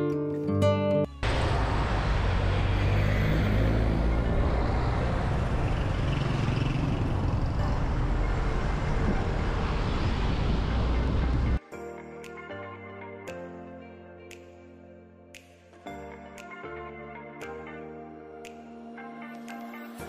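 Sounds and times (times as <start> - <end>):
road traffic rumble: 1.2 - 11.6.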